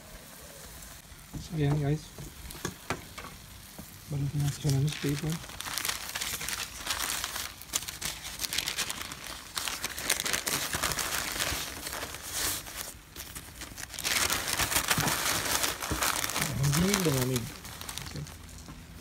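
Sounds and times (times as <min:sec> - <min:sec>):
newspaper crinkling and rustling: 0:03.8 - 0:19.0.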